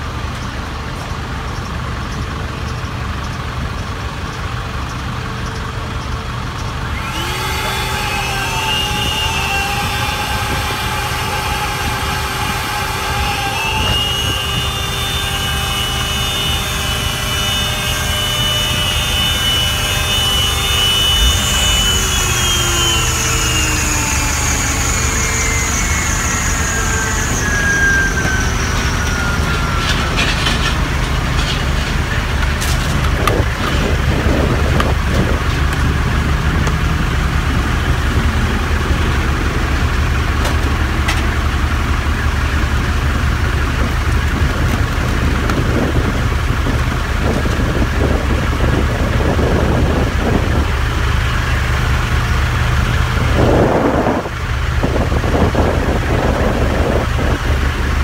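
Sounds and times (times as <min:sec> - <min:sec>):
truck engine running: 0:00.0 - 0:58.0
whine falling in pitch: 0:07.0 - 0:32.6.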